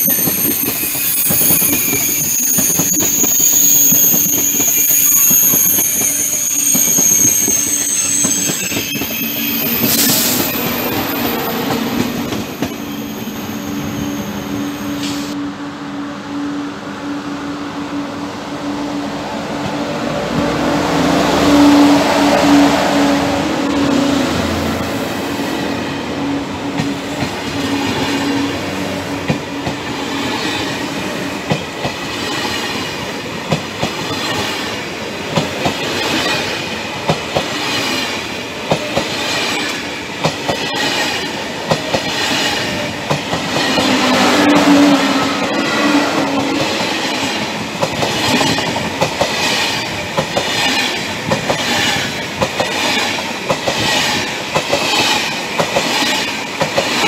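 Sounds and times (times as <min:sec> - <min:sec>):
train running rumble: 0:19.2 - 0:57.0
train wheels clicking over rail joints: 0:31.4 - 0:44.8, 0:46.2 - 0:57.0.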